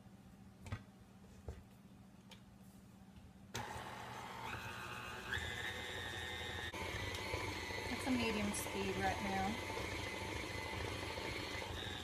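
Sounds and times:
stand mixer motor whirring: 3.6s - 12.0s.

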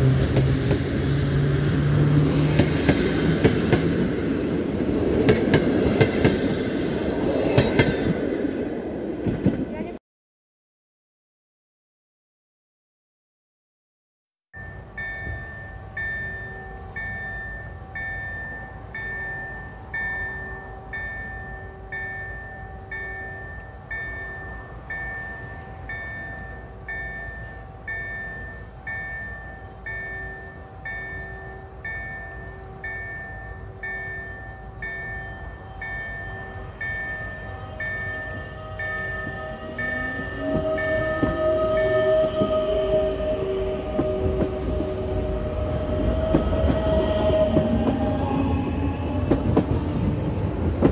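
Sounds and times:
level crossing warning bell: 14.5s - 48.6s
electric train motors whining: 14.6s - 50.8s.

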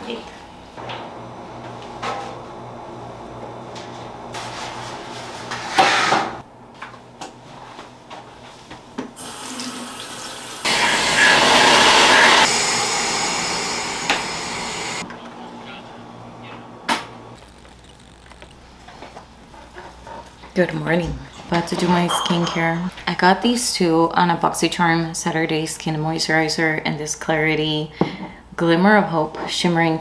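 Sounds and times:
water running from a tap: 9.2s - 11.3s.

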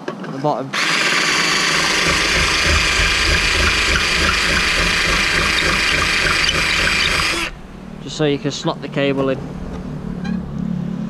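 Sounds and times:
cordless drill running: 0.7s - 7.6s.

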